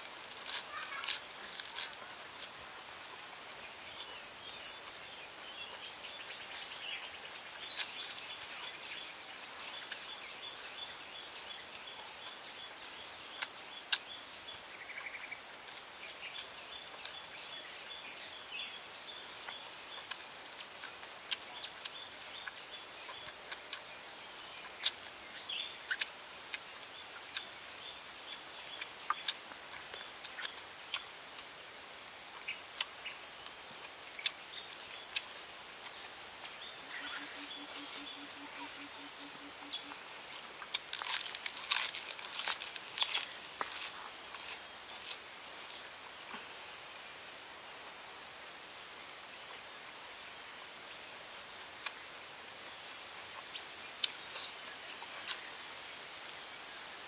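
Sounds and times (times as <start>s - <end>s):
outdoor hiss: 0.0s - 57.0s
birds chirping: 35.8s - 45.5s.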